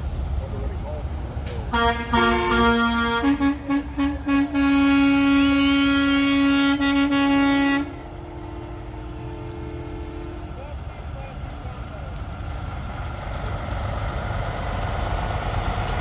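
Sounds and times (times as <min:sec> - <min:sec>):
truck air horn blasts: 0:01.7 - 0:10.6.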